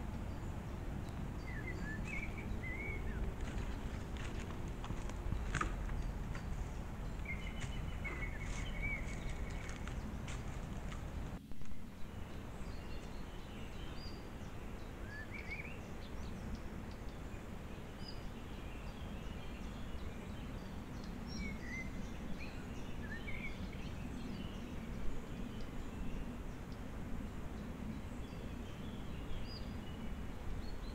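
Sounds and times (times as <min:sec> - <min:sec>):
low ambient noise: 0:00.0 - 0:30.9
high bird chirps: 0:05.2 - 0:10.2.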